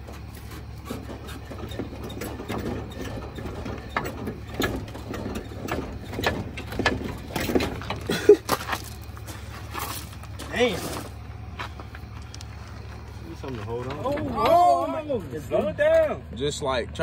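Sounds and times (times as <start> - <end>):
metallic clicks and creaks: 0.0 - 10.4, 11.8 - 16.1.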